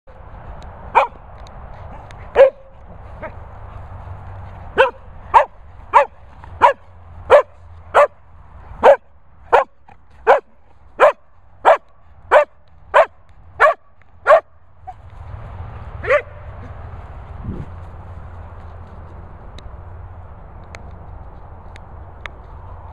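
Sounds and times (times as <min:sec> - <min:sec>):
dog barking: 0:01.0 - 0:01.2, 0:02.3 - 0:03.4, 0:04.8 - 0:08.2, 0:08.8 - 0:14.6, 0:16.0 - 0:16.4.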